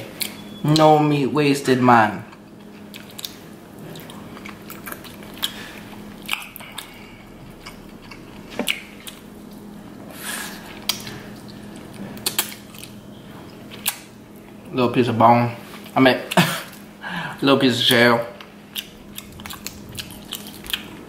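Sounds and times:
chewing: 2.2s - 9.7s, 10.4s - 14.7s, 18.4s - 21.0s.

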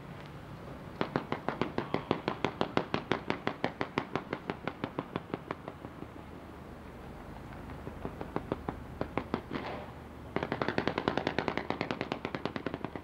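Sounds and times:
fireworks banging: 0.9s - 6.3s, 7.4s - 13.0s.

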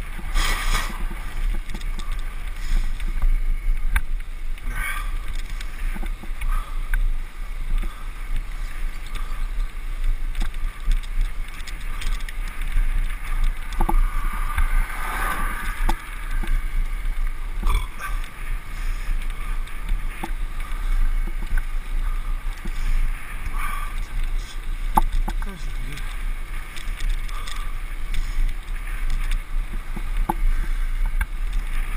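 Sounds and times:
tyre and road hiss: 0.0s - 31.9s
wind rumble on microphone: 0.0s - 31.9s
small clicks and knocks: 0.2s - 4.2s, 7.7s - 14.8s, 22.5s - 31.9s.

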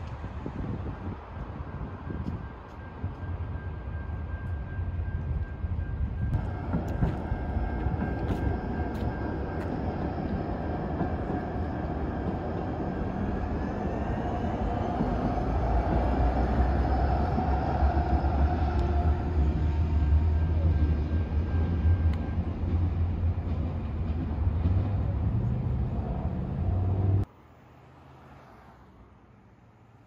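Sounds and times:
light-rail train passing: 0.0s - 30.0s
road traffic: 0.0s - 30.0s
train motor whine: 2.1s - 23.4s.

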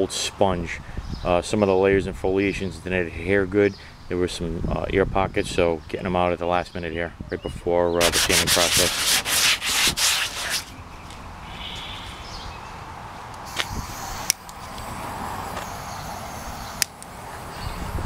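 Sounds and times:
rubbing on plastic: 8.0s - 10.8s.

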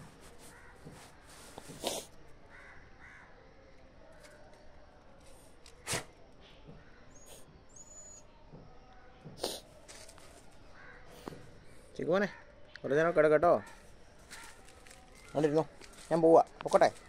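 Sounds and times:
faint bird calls: 10.6s - 12.9s.

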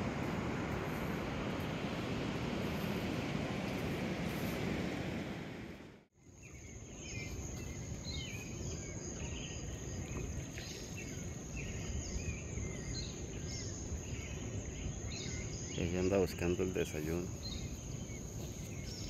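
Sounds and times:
beach surf rushing: 0.0s - 6.0s
low rushing water: 0.0s - 6.1s
small birds chirping: 6.2s - 19.0s.

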